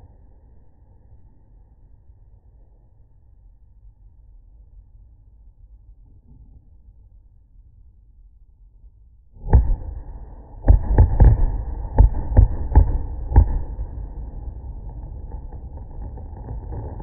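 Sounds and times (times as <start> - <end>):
deep rumble: 9.3 - 17.0
fireworks boom: 9.4 - 17.0
low thuds: 9.4 - 17.0.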